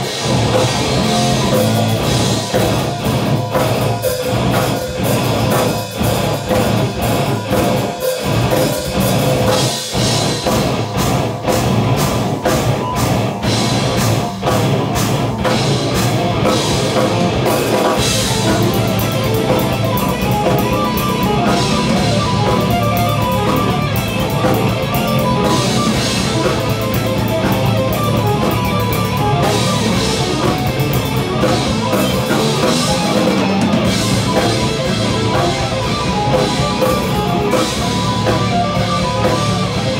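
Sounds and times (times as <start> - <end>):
distorted electric guitars: 0.0 - 39.9
drum hits and cymbals: 0.0 - 39.9
heavy metal band playing: 0.0 - 39.9.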